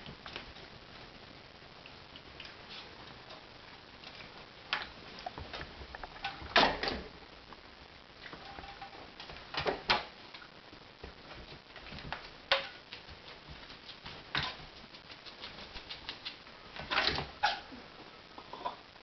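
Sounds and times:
kitten paws tapping and scrabbling: 4.0 - 6.7, 8.2 - 17.6.

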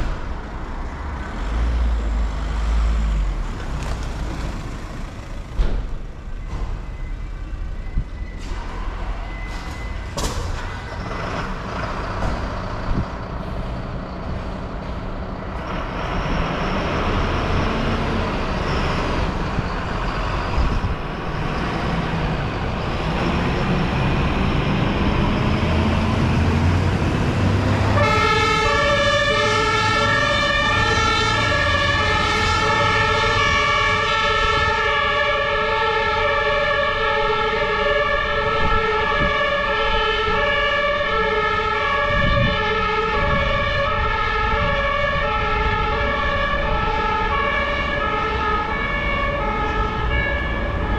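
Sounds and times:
diesel engine pulling away: 0.0 - 50.9
two-tone emergency siren: 6.3 - 10.8, 17.5 - 50.9.

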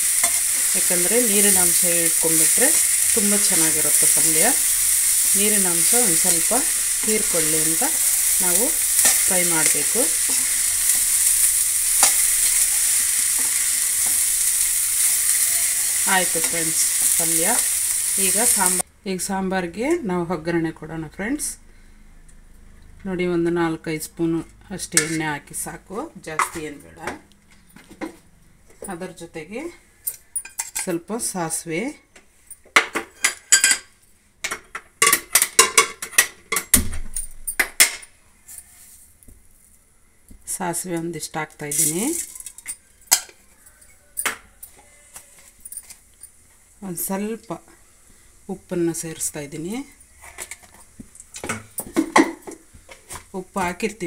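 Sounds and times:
spoon stirring: 0.0 - 18.8
beans sizzling in a pan: 0.0 - 18.9, 38.4 - 54.0.

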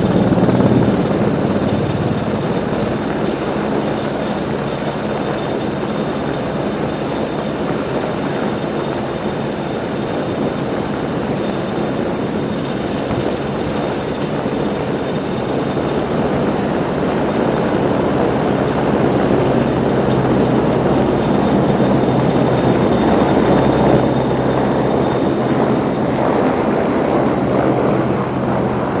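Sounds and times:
helicopter rotor and turbine engines: 0.0 - 29.0.

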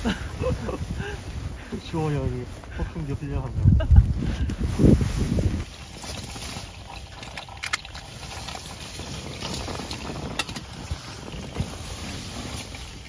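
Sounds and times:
hot water trickling into dripper: 5.6 - 13.0.

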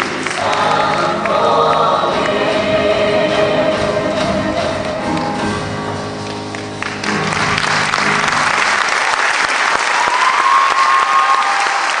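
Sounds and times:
audience clapping and cheering: 0.0 - 2.4, 6.2 - 12.0
choir singing held chord: 0.0 - 5.6.

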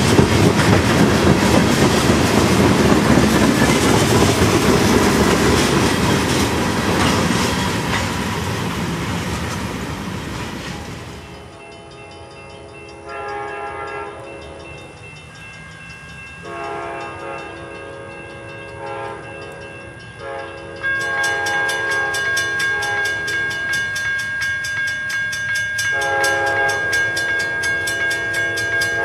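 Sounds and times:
crossing bell ringing: 0.0 - 29.0
train horn blasts: 11.4 - 14.8, 16.4 - 23.7, 25.9 - 29.0.

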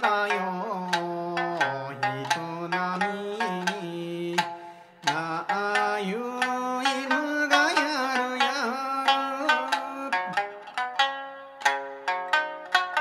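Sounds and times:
man singing long held notes: 0.0 - 10.3
plucked lute rhythm: 0.0 - 13.0.

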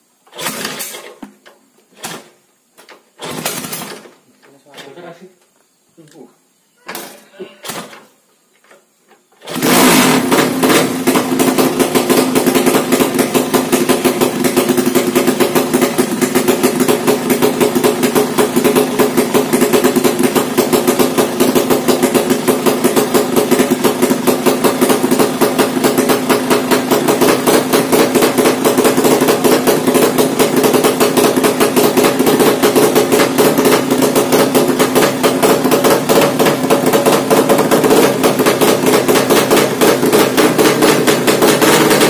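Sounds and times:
motorcycle engine idling: 10.2 - 42.0.

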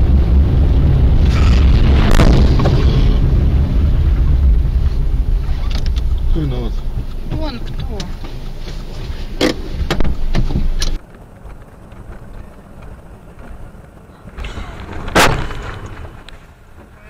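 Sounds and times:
road and wind rumble: 0.0 - 17.0
car collision bang: 15.0 - 16.2.

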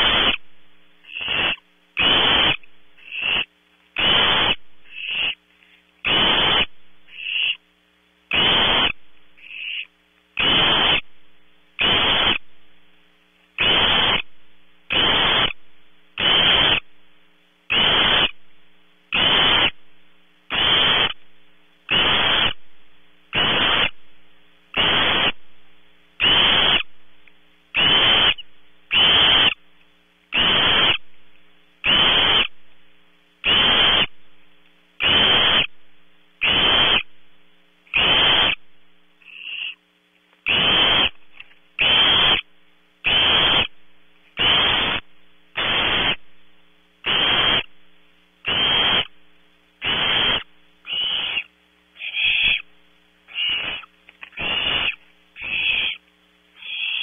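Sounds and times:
owl chick rasping hiss: 0.0 - 7.7, 8.3 - 11.1, 11.8 - 12.5, 13.5 - 15.6, 16.2 - 16.9, 17.7 - 18.4, 19.1 - 19.8, 20.5 - 21.2, 21.8 - 22.6, 23.3 - 24.0, 24.7 - 25.4, 26.2 - 27.0, 27.7 - 29.6, 30.3 - 31.1, 31.8 - 32.6, 33.4 - 34.2, 35.0 - 35.8, 36.4 - 37.2, 37.9 - 39.8, 40.4 - 46.2, 47.0 - 47.7, 48.4 - 49.2, 49.8 - 57.0.

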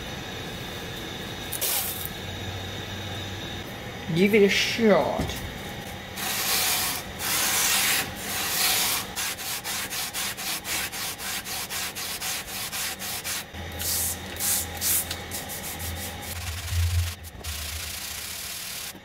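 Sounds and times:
hand sanding rasping strokes: 6.2 - 18.8
low hum: 15.0 - 18.9.

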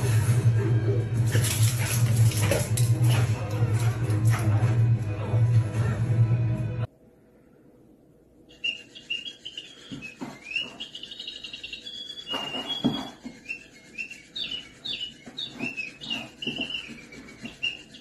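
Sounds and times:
small bird chirping: 8.5 - 18.0.

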